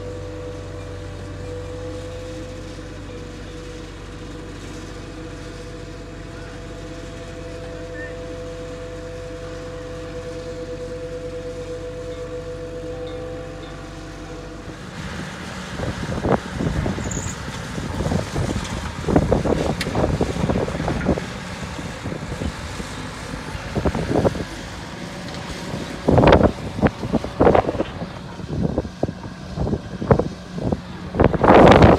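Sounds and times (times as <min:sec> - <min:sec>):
distant loader engine humming: 0:00.0 - 0:31.9
wind buffeting microphone: 0:14.7 - 0:31.9.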